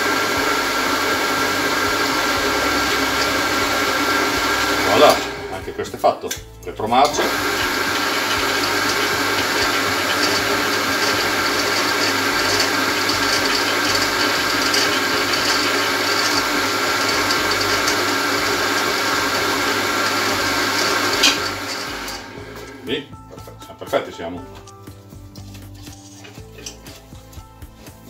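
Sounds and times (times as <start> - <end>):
drill press whirring: 0.0 - 5.8, 7.1 - 22.9.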